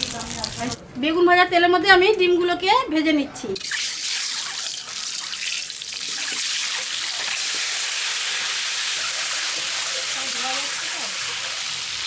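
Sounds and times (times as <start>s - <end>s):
eggs sizzling in hot oil: 3.6s - 12.0s.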